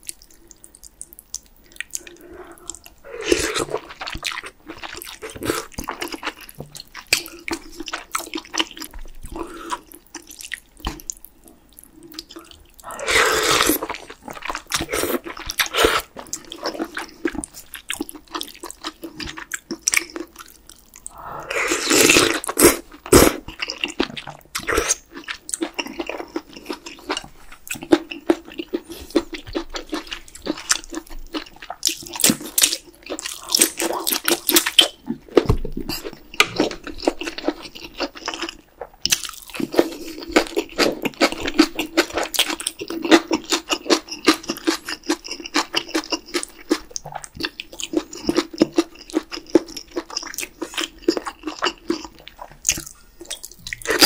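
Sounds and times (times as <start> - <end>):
wet chewing and lip smacks: 0.0 - 3.0, 22.4 - 54.0
slurping noodles and broth: 12.8 - 14.2, 21.0 - 23.4.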